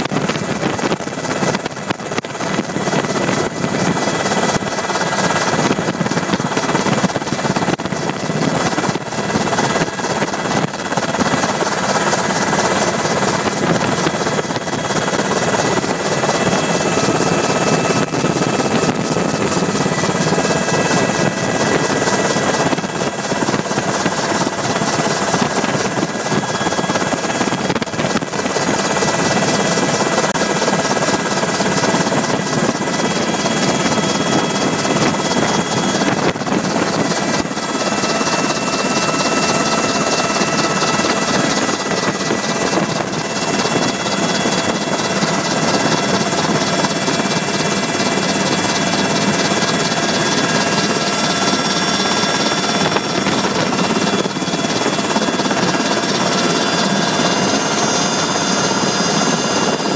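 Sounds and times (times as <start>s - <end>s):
helicopter rotor and engine rush: 0.0s - 59.9s
high whining tones: 10.9s - 29.1s.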